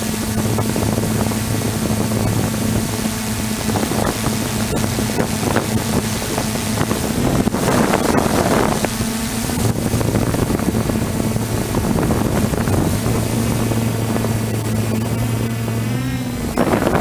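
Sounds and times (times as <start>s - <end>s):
quadcopter propellers humming: 0.0s - 17.0s
wind buffeting microphone: 0.0s - 17.0s.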